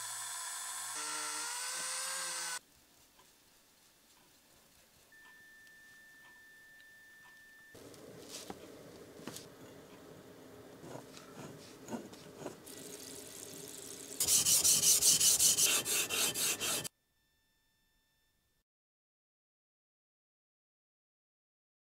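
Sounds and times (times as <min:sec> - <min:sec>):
plane iron rubbing on sharpening surface: 0:14.2 - 0:16.9.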